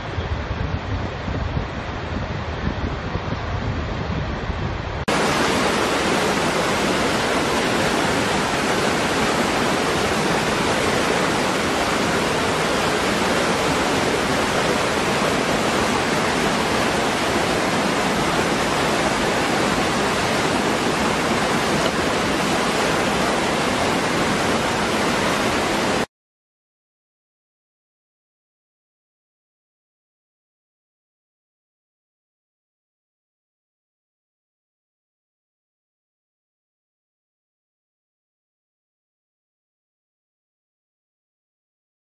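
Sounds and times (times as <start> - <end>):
waterfall roaring: 4.8 - 26.1.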